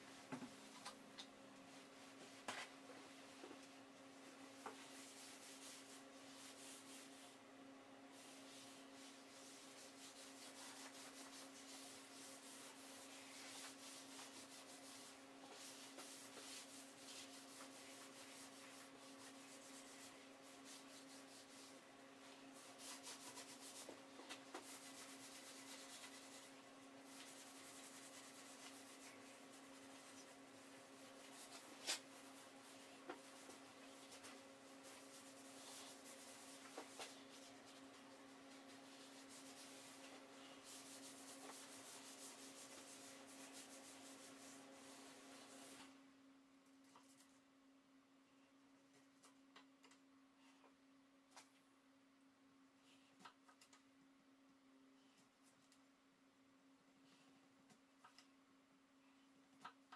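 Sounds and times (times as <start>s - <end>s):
paper towel rubbing wood: 8.2s - 21.8s, 22.6s - 45.8s.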